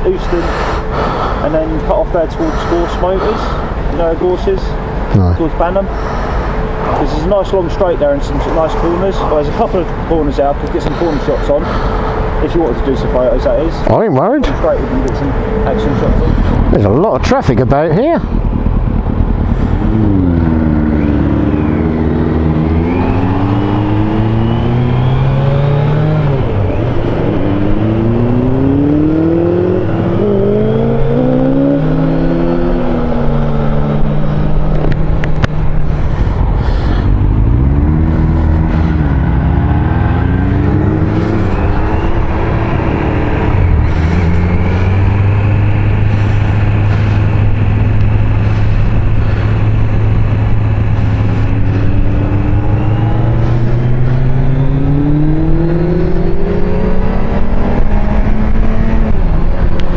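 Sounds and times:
motorcycle engine accelerating: 5.1s - 12.5s, 13.1s - 59.9s
wind rushing over microphone: 15.2s - 59.9s.

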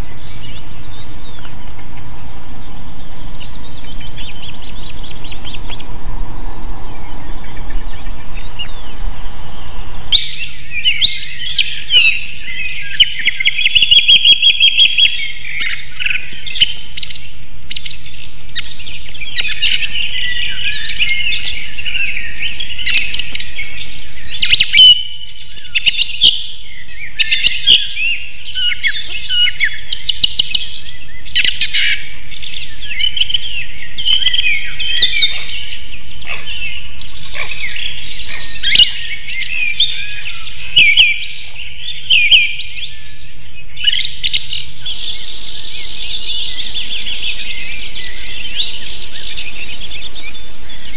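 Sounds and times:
steady low noise: 0.0s - 13.7s
birds singing and chirping: 0.0s - 50.9s.

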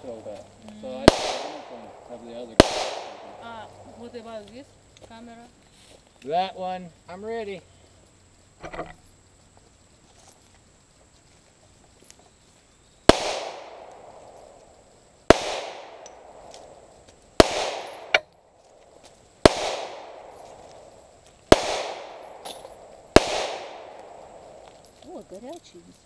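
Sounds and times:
pistol shots with echo: 1.0s - 3.6s, 13.1s - 14.3s, 15.3s - 16.8s, 17.4s - 18.2s, 19.4s - 20.5s, 21.5s - 24.6s.

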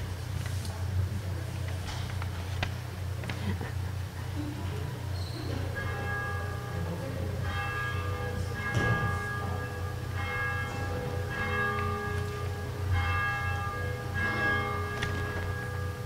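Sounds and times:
church bell tolling: 5.5s - 16.0s.

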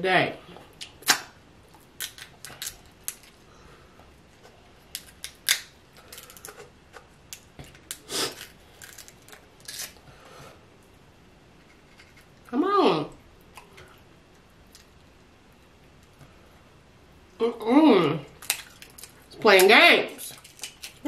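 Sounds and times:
crab shells cracking: 0.8s - 3.4s, 4.8s - 10.0s, 18.3s - 19.3s, 20.3s - 21.0s.

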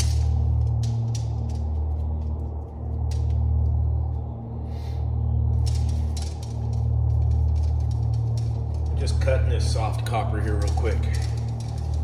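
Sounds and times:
low electrical hum: 0.0s - 12.0s
faint ticks and crackles: 9.9s - 12.0s.

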